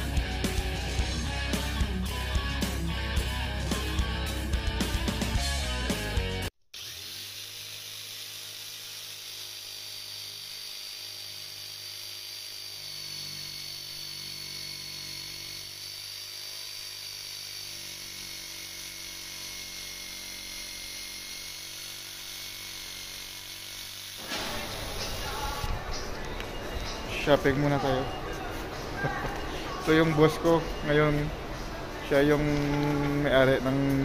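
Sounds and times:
electric jigsaw cutting: 6.7s - 25.7s.

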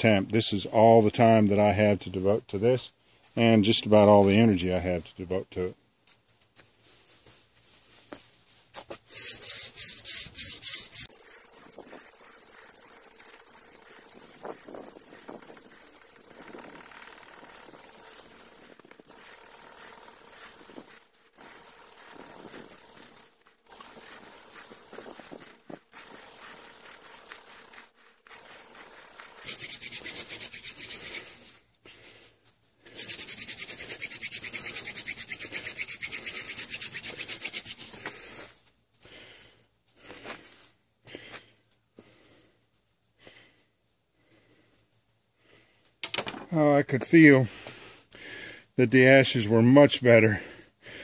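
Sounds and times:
wooden spindle rasping in fireboard: 9.0s - 31.5s, 32.9s - 38.2s.

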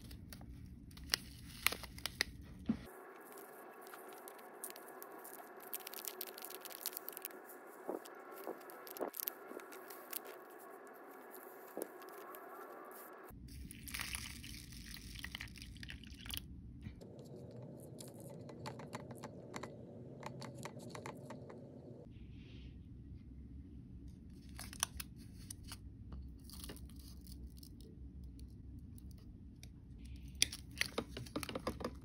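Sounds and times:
plastic packet crinkling: 0.0s - 2.4s, 3.0s - 12.7s.

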